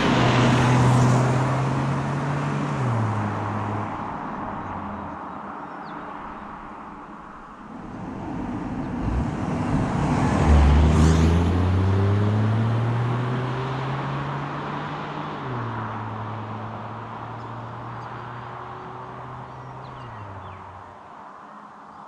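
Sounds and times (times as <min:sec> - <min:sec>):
car accelerating past: 0:00.0 - 0:04.0, 0:07.7 - 0:20.6.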